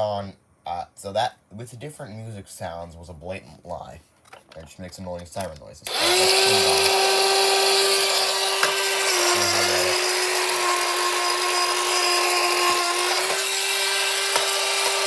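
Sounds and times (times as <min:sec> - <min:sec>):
toy motor and gears whirring: 0:05.9 - 0:15.0.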